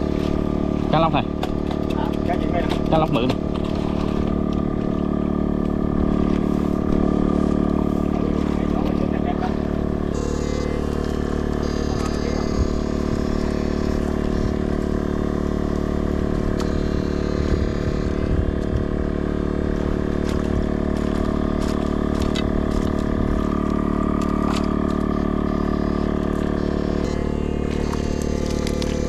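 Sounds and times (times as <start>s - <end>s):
mechanical drone: 0.0s - 29.0s.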